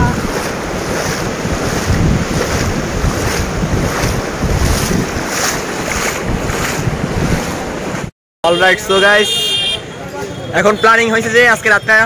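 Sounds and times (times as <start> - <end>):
wind buffeting microphone: 0.0 - 8.1
sea surf: 0.0 - 9.4.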